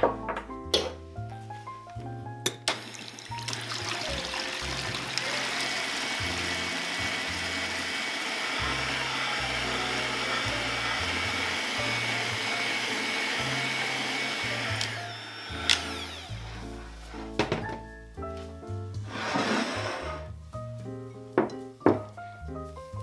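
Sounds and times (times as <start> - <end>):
electric hand mixer whining: 2.8 - 16.9.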